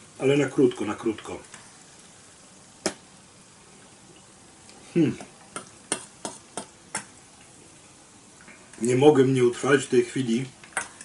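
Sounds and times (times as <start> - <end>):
person murmuring: 4.8 - 5.3.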